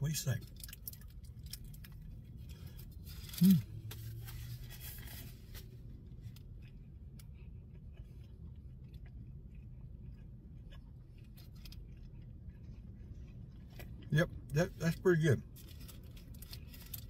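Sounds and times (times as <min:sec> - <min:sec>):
burger being bitten and chewed: 0:00.0 - 0:17.0
low steady hum: 0:00.0 - 0:17.0
person humming: 0:03.4 - 0:03.7.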